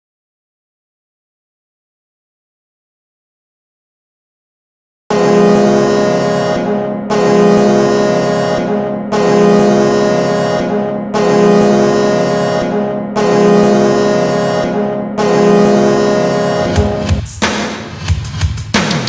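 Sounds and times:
air horn blasts: 5.1 - 17.2.

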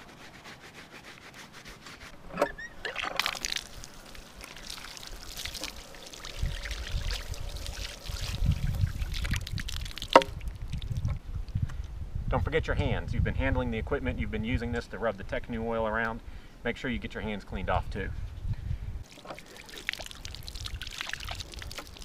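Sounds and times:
water pouring and splashing: 2.8 - 11.6, 19.0 - 22.0.

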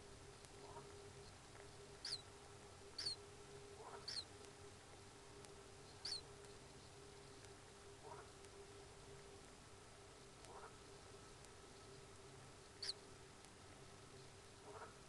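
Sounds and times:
steady faint hum: 0.0 - 15.0
faint high bird chirps: 0.6 - 2.3, 2.9 - 4.4, 5.8 - 8.3, 12.7 - 13.1.

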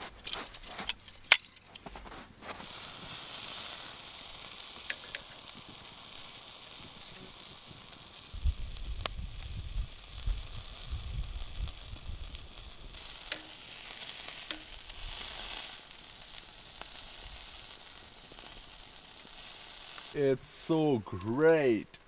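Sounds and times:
sausage sizzling on grill: 2.0 - 22.0
metal tongs clicking on grate: 13.3 - 13.5.

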